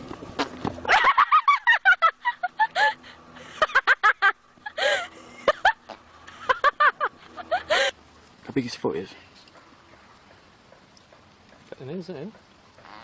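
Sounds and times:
person laughing hard: 0:00.9 - 0:08.0.

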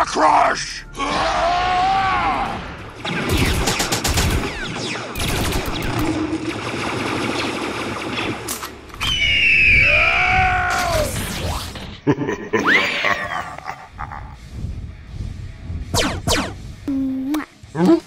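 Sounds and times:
gunfire bursts: 0:03.0 - 0:08.5.

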